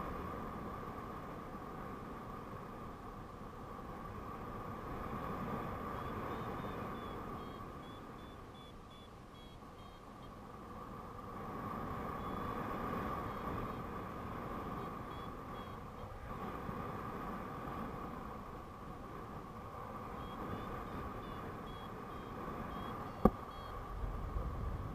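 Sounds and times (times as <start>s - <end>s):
short high beeps: 6.0s - 10.4s, 14.7s - 16.1s, 20.2s - 23.8s
wind rushing over microphone: 10.7s - 24.9s.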